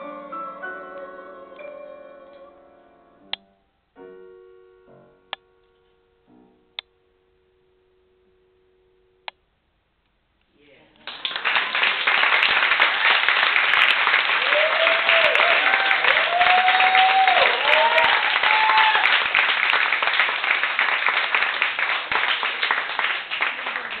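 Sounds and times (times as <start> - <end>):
audience applauding: 11.0 - 24.0
voices cheering: 14.3 - 19.3.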